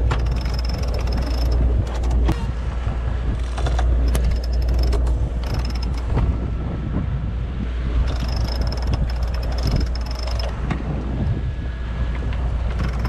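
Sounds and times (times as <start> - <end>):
winch pawls clicking: 0.0 - 2.4, 3.4 - 6.2, 8.1 - 10.6, 12.7 - 13.0
low rumble: 0.0 - 13.0.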